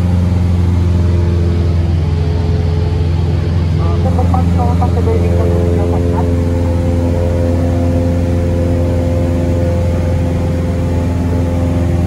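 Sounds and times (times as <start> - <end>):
propeller plane engine droning: 0.0 - 12.0.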